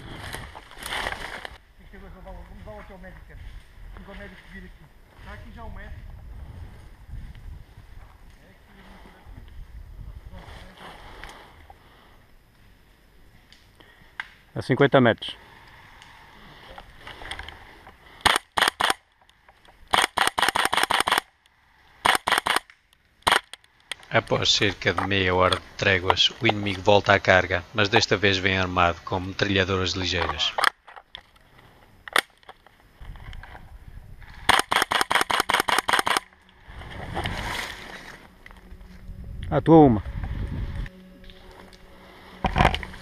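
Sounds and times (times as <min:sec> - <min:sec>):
low rumble of wind: 0:00.0 - 0:20.2, 0:22.8 - 0:43.0
airsoft rifle shots: 0:18.2 - 0:19.0, 0:19.9 - 0:21.3, 0:22.0 - 0:23.6, 0:34.4 - 0:36.3.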